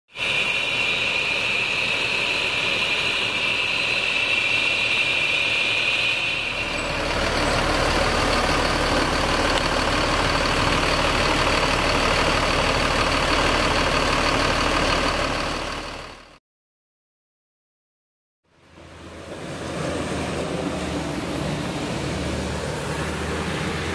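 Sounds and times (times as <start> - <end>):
high whine: 0.1 - 16.0
diesel engine idling: 0.1 - 16.4, 18.7 - 23.9.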